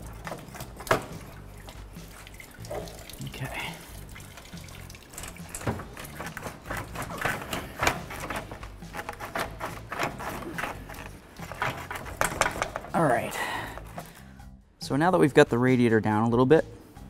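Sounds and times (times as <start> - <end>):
radiator parts clacking and scraping: 5.0 - 14.2.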